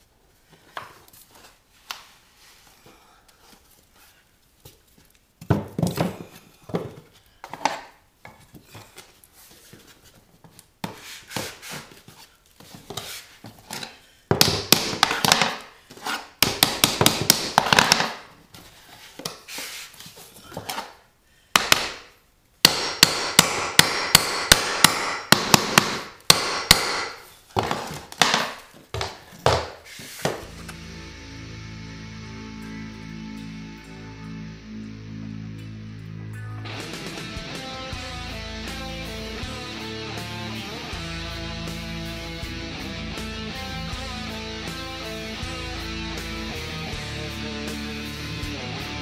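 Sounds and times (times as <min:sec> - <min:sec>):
hammer striking flooring: 0:14.3 - 0:15.7, 0:16.4 - 0:18.3, 0:21.6 - 0:30.6.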